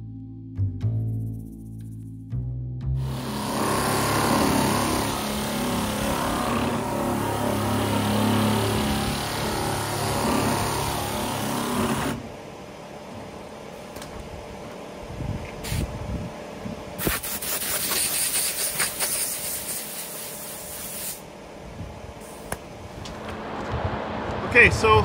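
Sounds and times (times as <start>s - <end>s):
pneumatic sander running: 3.0s - 12.4s, 17.0s - 21.3s
compressed air hissing: 15.6s - 15.9s, 17.0s - 21.3s, 22.2s - 22.6s.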